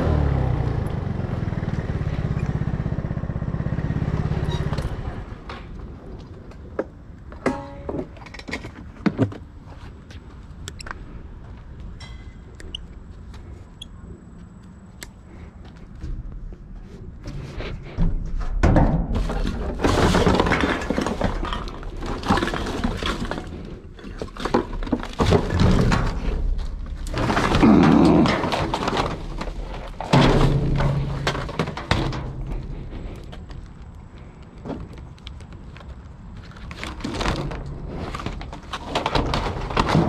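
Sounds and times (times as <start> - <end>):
rummaging through dumpster: 16.0 - 33.9, 36.3 - 40.0.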